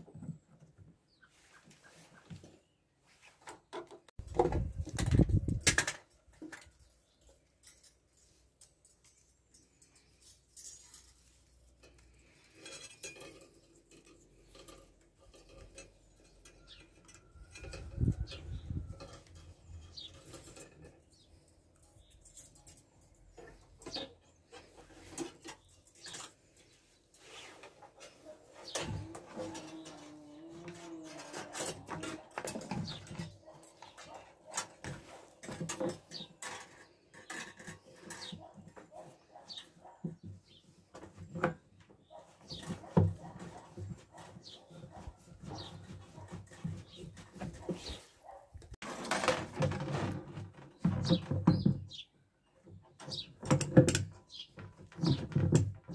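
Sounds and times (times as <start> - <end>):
wire rustling through plastic nut: 4.2 - 40.0.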